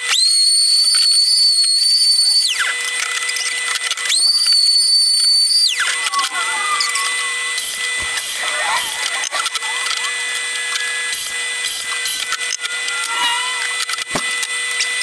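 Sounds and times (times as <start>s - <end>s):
power tools whining: 0.0s - 15.0s.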